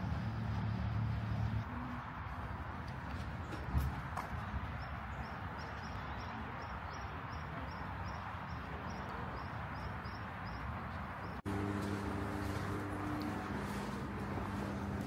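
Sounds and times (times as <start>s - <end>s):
steady low hum: 11.4s - 15.0s.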